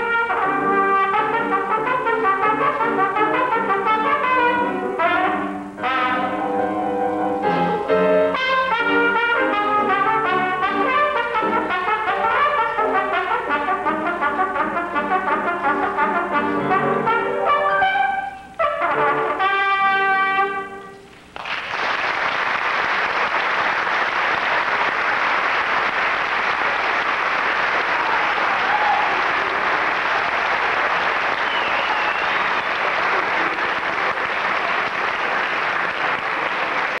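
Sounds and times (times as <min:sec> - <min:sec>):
audience applause: 0:21.4 - 0:37.0.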